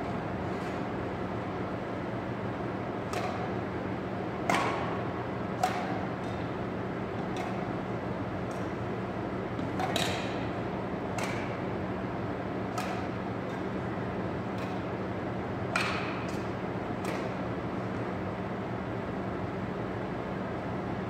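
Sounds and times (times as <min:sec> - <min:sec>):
steady background hum: 0:00.0 - 0:21.0
shuttlecock hit by rackets: 0:03.1 - 0:03.4, 0:05.6 - 0:06.4, 0:09.6 - 0:10.4, 0:11.2 - 0:11.6, 0:12.7 - 0:13.1, 0:15.7 - 0:17.4.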